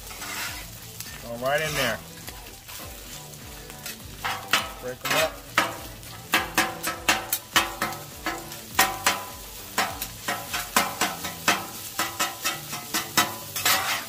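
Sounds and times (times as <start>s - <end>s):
food sizzling: 0.0s - 14.0s
metal spatulas clacking on griddle: 3.8s - 14.0s.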